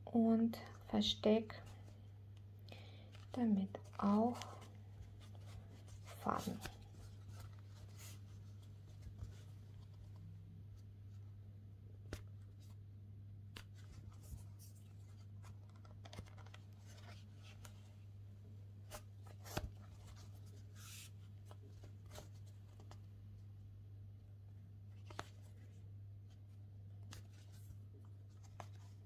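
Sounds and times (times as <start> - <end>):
crochet hook and yarn rustling: 3.1 - 11.3.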